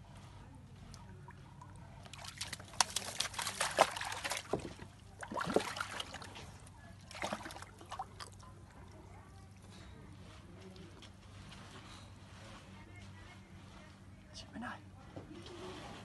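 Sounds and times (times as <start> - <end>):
animal splashing water in a tub: 0.8 - 9.7.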